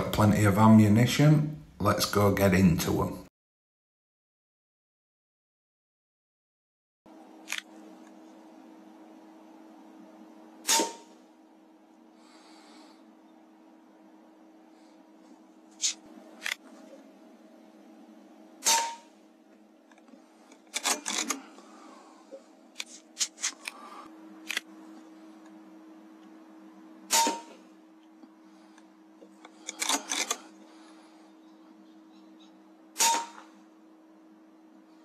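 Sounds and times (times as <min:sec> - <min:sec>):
faint steady hum: 0:00.0 - 0:03.3, 0:07.1 - 0:35.0
air rifle shots: 0:10.7 - 0:11.1, 0:18.6 - 0:19.1, 0:27.1 - 0:27.5, 0:33.0 - 0:33.5.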